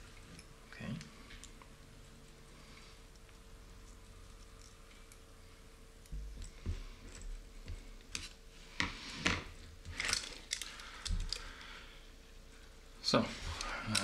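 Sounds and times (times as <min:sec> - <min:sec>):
metal parts clicking: 0:10.0 - 0:11.5, 0:13.6 - 0:14.0.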